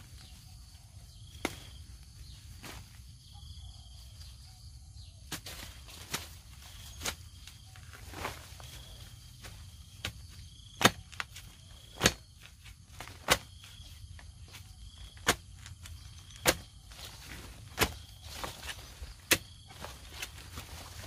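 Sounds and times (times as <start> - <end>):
insects chirping: 0.0 - 21.0
digging tool striking soil: 10.0 - 12.2, 15.1 - 16.8, 17.7 - 19.6.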